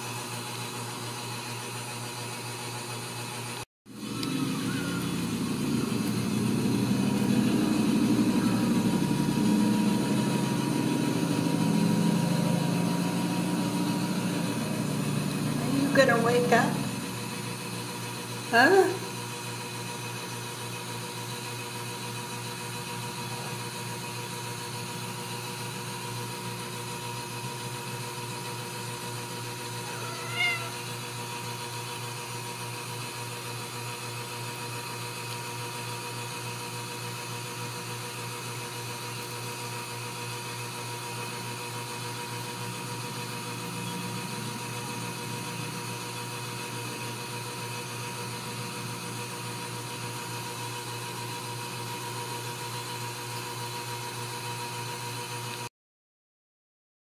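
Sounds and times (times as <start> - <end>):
steady low hum: 4.0 - 18.1
kitten mewing: 4.2 - 5.3, 29.8 - 30.9.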